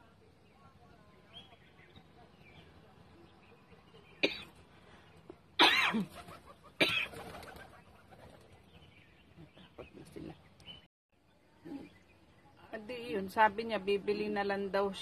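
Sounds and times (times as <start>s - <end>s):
pigeon wings flapping: 6.0s - 8.6s.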